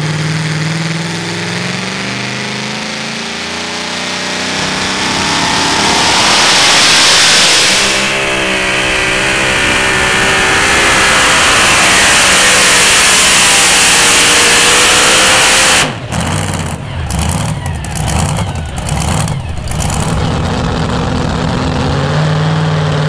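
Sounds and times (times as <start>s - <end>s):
truck engine revving under load: 0.0s - 23.0s.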